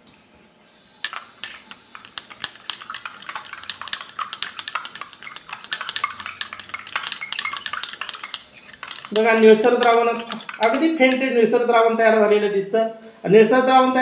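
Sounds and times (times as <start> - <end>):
glass rod clinking in beaker: 1.0 - 11.3.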